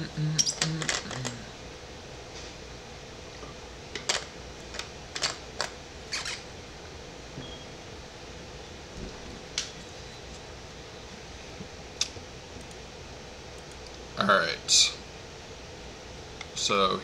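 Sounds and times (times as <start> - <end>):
low vocal hum: 0.0 - 1.7
steady room hum: 0.0 - 17.0.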